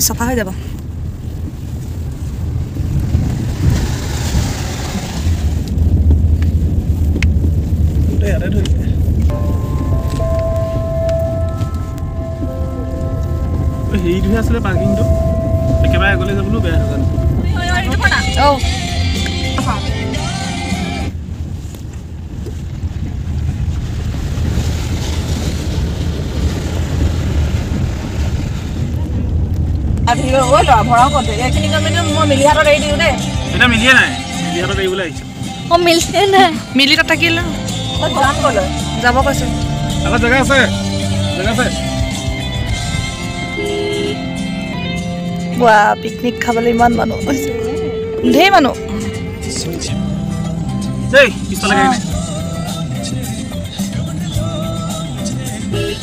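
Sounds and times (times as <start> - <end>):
water splashing under tyres: 0.0 - 18.1, 21.2 - 44.2
car interior low rumble: 0.0 - 56.0.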